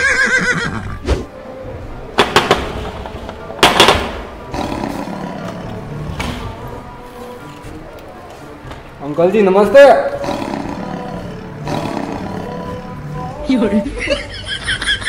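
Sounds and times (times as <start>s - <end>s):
roar-like sound: 4.4s - 6.6s, 10.2s - 13.0s.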